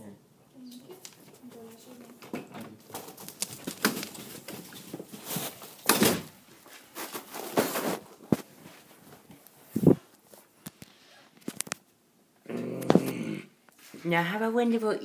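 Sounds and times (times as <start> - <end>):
rustling: 0.8 - 11.8.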